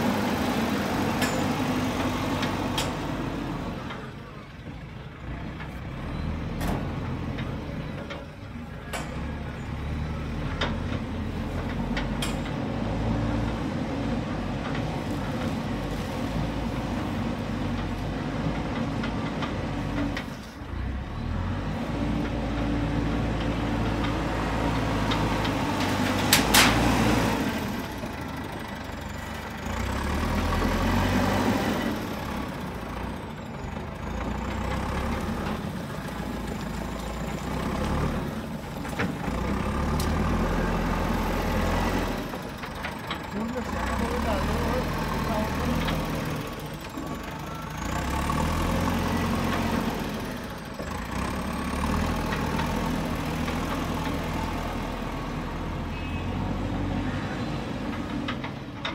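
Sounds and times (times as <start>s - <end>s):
diesel engine revving: 0.0s - 4.5s, 5.1s - 58.9s.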